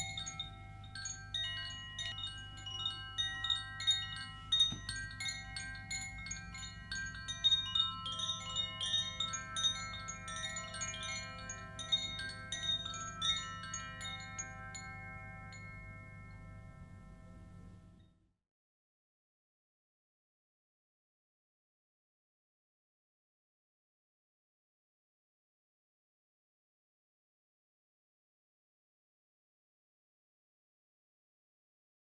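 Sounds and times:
wind chimes tinkling: 0.0s - 18.0s
low steady hum: 0.0s - 18.1s.

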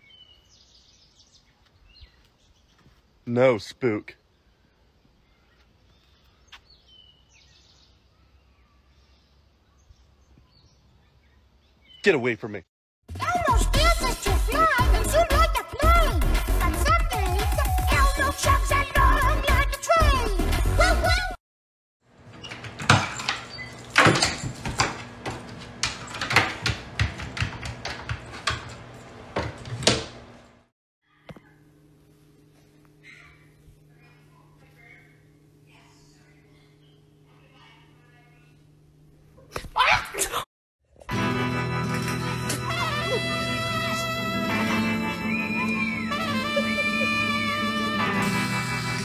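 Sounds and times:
wooden knocks and clicks: 24.0s - 30.1s.

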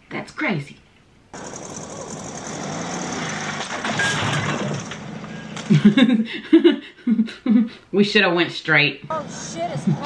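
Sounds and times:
vehicle engine running: 1.4s - 5.7s.

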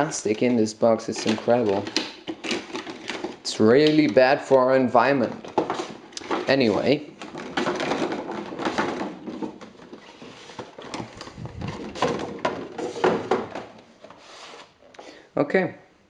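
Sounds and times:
plastic packaging crinkling: 0.4s - 4.2s.

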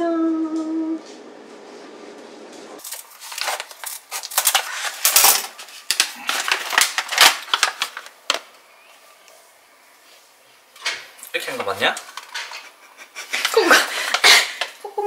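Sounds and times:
scissors snipping paper bag: 2.8s - 8.0s
paper bag crinkling: 2.8s - 8.6s.

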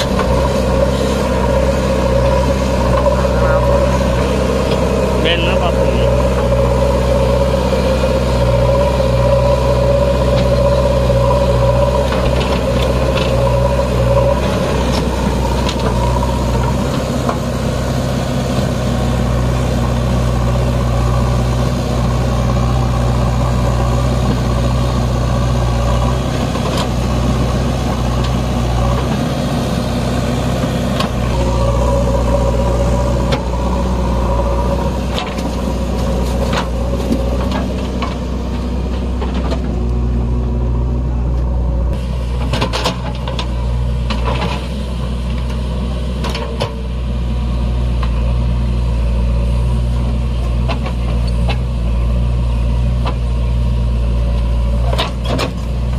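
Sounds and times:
high whine: 0.0s - 17.5s, 31.0s - 43.2s
diesel engine running: 0.0s - 55.9s.

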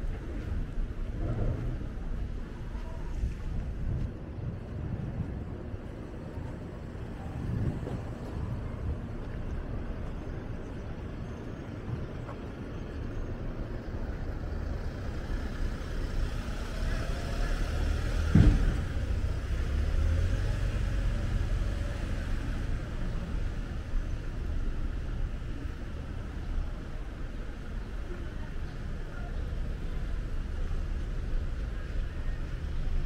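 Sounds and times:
sharp thump: 18.2s - 19.1s.

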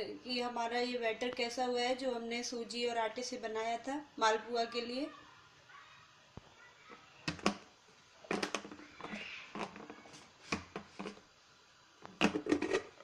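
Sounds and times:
plastic lid clicks and snaps: 7.3s - 7.6s, 8.3s - 11.2s, 12.0s - 12.9s.

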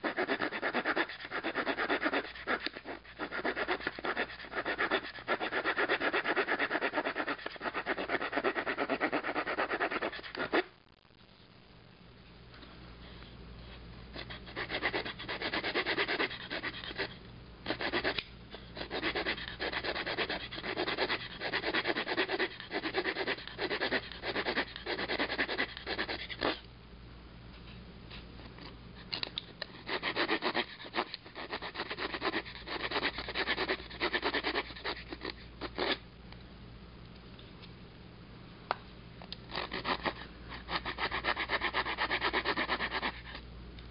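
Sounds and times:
saw blade cutting wood: 39.5s - 43.2s.

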